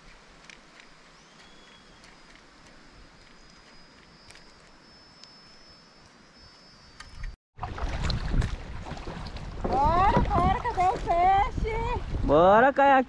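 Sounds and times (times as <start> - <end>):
thin high tone: 0.8 - 7.4
wind on microphone: 7.0 - 12.5
water splashing around kayak: 7.6 - 12.4.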